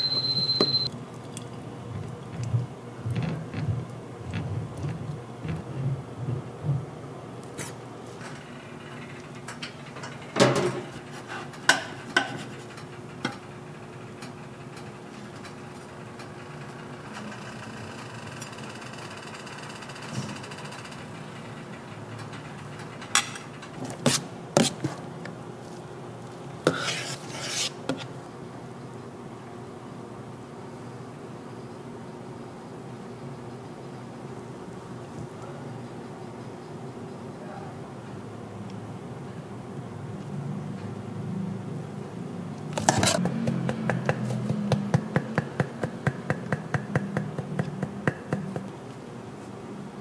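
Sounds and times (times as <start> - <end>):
kitchen equipment hum: 0.0 - 28.6, 42.5 - 50.0
metal utensils clattering on cookware: 23.0 - 23.5.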